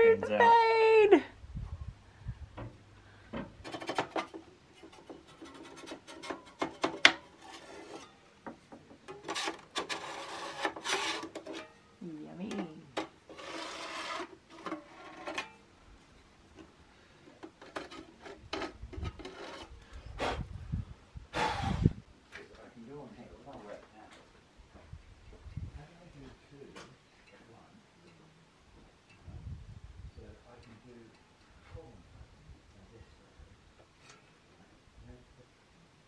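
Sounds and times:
hand scraper scraping wood: 0:03.6 - 0:08.2, 0:09.1 - 0:11.7, 0:12.9 - 0:15.5, 0:17.4 - 0:20.5, 0:21.4 - 0:21.9.

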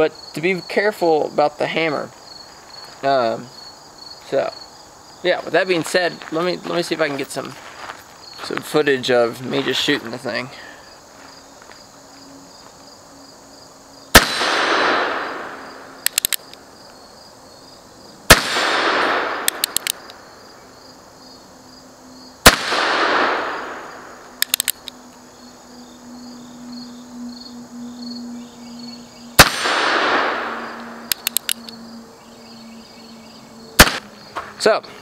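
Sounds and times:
crickets chirping: 0:00.0 - 0:35.0
revolver shots with echo: 0:14.2 - 0:15.6, 0:29.4 - 0:30.7, 0:33.8 - 0:34.0
revolver hammer cocking clicks: 0:16.0 - 0:16.6, 0:19.4 - 0:20.2, 0:24.4 - 0:25.0, 0:31.1 - 0:31.8.

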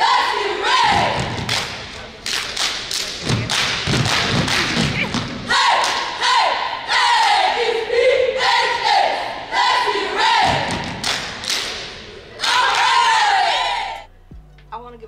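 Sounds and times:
group shouting chant in unison: 0:00.0 - 0:01.3, 0:05.5 - 0:10.7, 0:12.4 - 0:14.0
hand claps: 0:01.4 - 0:06.1, 0:10.8 - 0:12.9.

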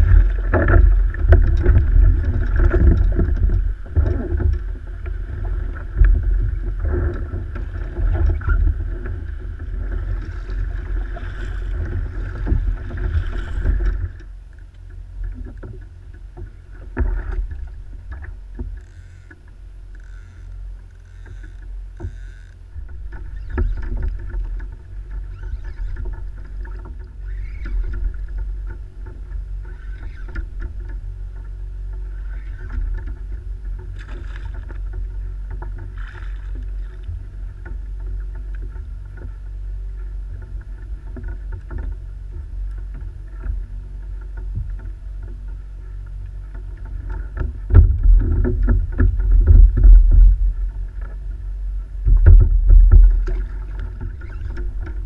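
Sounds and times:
water lapping against kayak hull: 0:00.0 - 0:55.0
wind rumble on microphone: 0:00.0 - 0:55.0.

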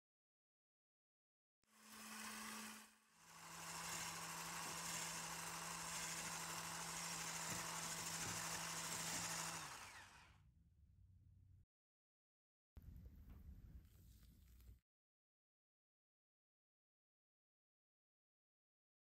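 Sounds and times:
electric mixer motor hum: 0:01.7 - 0:10.4.

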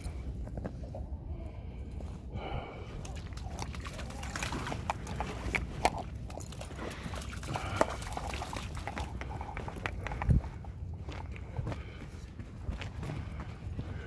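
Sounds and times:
footsteps on muddy trail: 0:01.8 - 0:14.0
dog splashing through water: 0:03.0 - 0:09.5.

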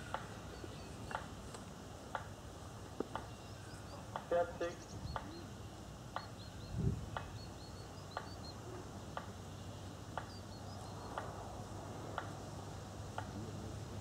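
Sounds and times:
faint bird chirps: 0:03.2 - 0:11.4.

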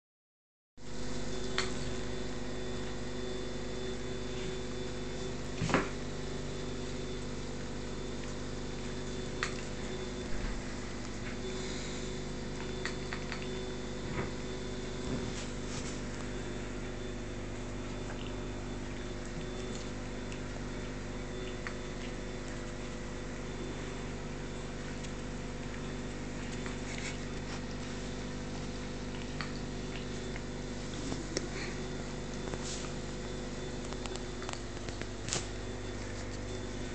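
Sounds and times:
steady low hum: 0:00.8 - 0:36.9.

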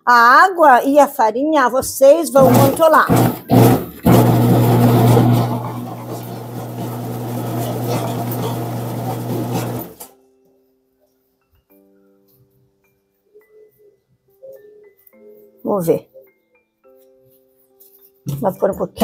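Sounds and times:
electric dough mixer humming: 0:02.4 - 0:10.1.

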